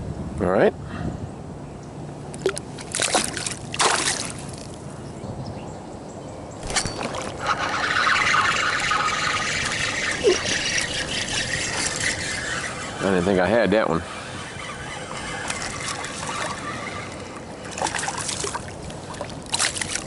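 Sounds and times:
water splashing: 0:02.4 - 0:04.8, 0:06.6 - 0:20.0
water trickling: 0:06.6 - 0:13.5, 0:14.1 - 0:20.0.

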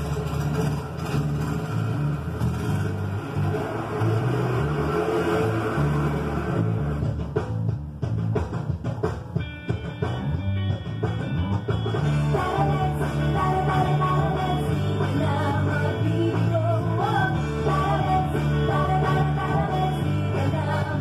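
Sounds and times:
electric bass: 0:00.0 - 0:21.0
rock song: 0:05.8 - 0:21.0
person singing: 0:12.2 - 0:21.0.

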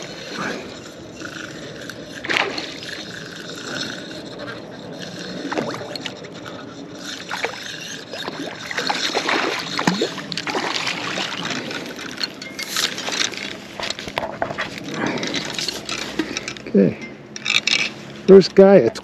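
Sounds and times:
fish splashing: 0:00.0 - 0:12.2.

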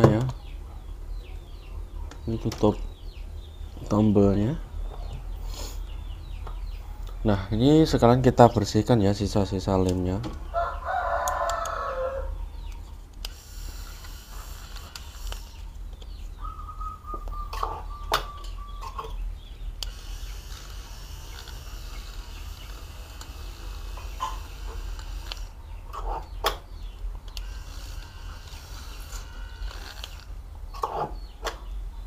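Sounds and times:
rooster crowing: 0:10.5 - 0:12.4.

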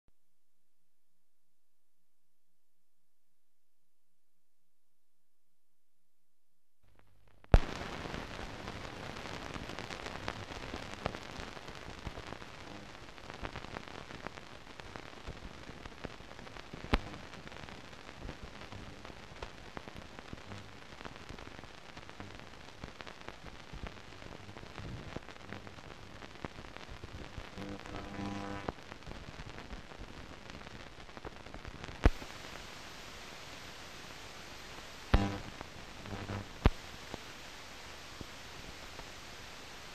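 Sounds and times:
film soundtrack hiss and crackle: 0:06.8 - 0:39.9
sharp pops: 0:07.4 - 0:08.3, 0:31.2 - 0:32.5, 0:34.7 - 0:37.2.

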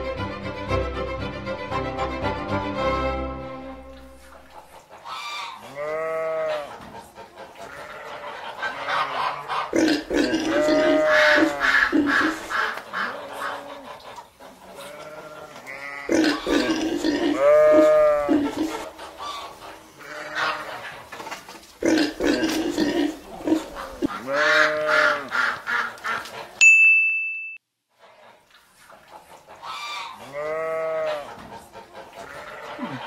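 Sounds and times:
pig calling: 0:04.1 - 0:06.8, 0:07.4 - 0:21.1, 0:21.8 - 0:26.5, 0:29.6 - 0:31.4, 0:32.0 - 0:33.0
animal call: 0:07.6 - 0:20.9.

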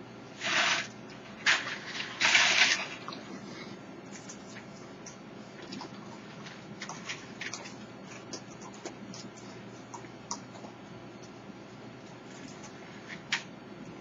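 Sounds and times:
raccoons crunching kibble: 0:04.1 - 0:11.4, 0:12.0 - 0:13.5.

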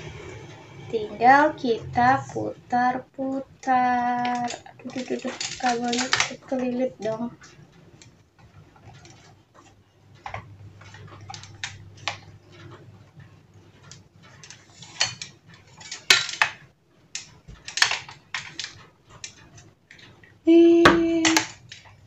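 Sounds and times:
light stand being handled: 0:04.2 - 0:20.1.

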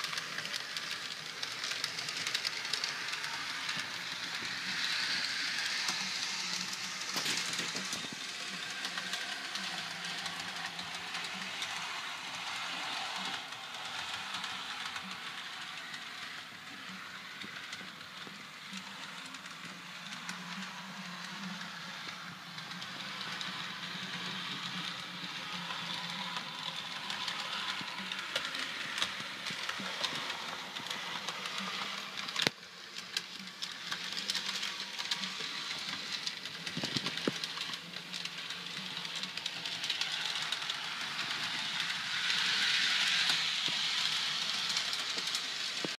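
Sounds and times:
model train motor whirring: 0:00.0 - 0:46.0
wheels rattling on rails: 0:00.0 - 0:46.0.

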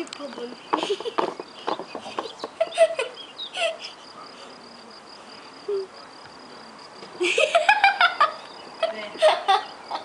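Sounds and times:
high-pitched voice giggling: 0:02.1 - 0:04.0.

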